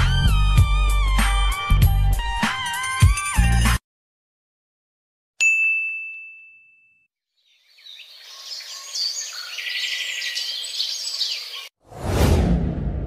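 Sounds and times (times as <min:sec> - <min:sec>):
bright ding: 0:05.4 - 0:07.1
birds chirping and singing: 0:07.4 - 0:11.7.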